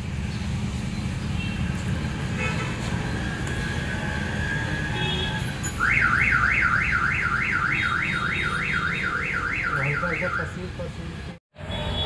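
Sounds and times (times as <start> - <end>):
car alarm siren warbling: 5.8 - 10.6.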